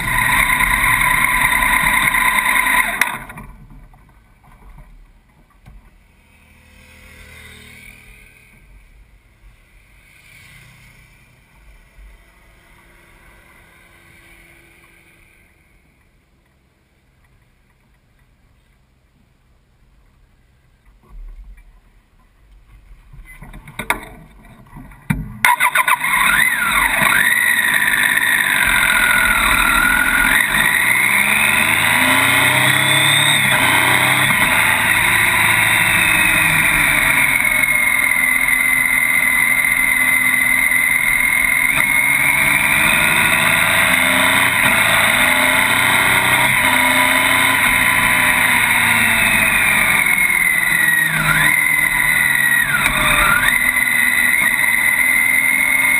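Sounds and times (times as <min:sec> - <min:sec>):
rising and falling whine: 0:00.0 - 0:04.8, 0:25.4 - 0:55.9
motorcycle engine: 0:00.0 - 0:16.2, 0:23.6 - 0:55.9.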